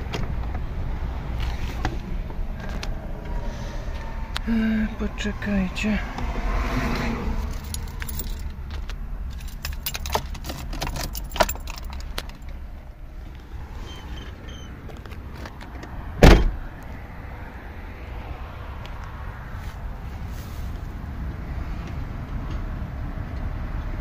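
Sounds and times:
low rumble: 0:00.0 - 0:09.8
keys jangling: 0:07.4 - 0:12.5
loud heavy thump: 0:16.2 - 0:16.6.

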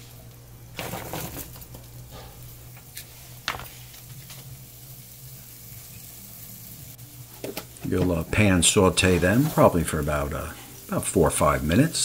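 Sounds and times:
oil sizzling: 0:00.0 - 0:12.0
steady low hum: 0:00.0 - 0:12.0
onion chunks tumbling into pan: 0:00.6 - 0:04.6.

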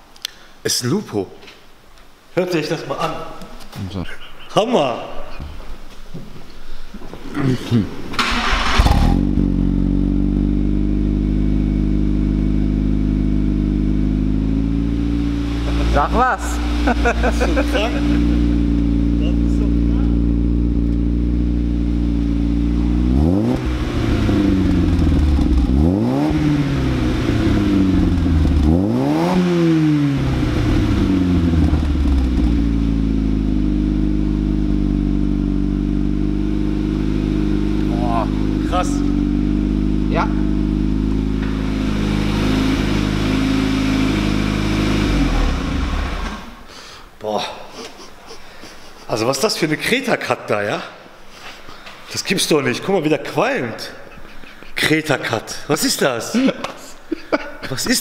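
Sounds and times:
exhaust burst: 0:08.1 - 0:10.6, 0:13.9 - 0:20.5, 0:36.1 - 0:47.0
car engine idling: 0:08.1 - 0:47.1.

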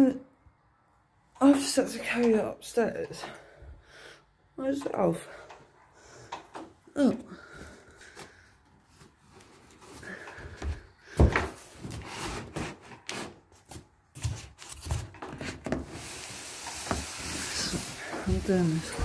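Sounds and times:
cardboard rustling: 0:10.6 - 0:19.0
cardboard flaps scraping: 0:11.2 - 0:19.0.

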